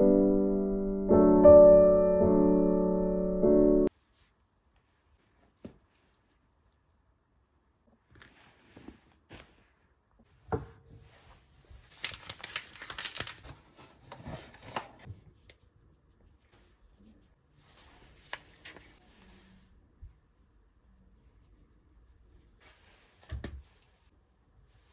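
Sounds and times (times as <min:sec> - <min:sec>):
rustling of things handled: 0:08.0 - 0:20.1.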